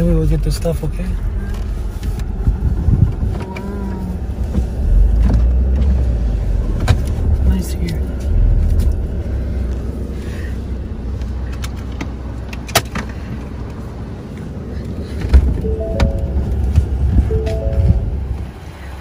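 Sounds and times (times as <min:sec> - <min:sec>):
vehicle engine idling: 0:03.6 - 0:19.0
stepped tones: 0:15.6 - 0:18.6.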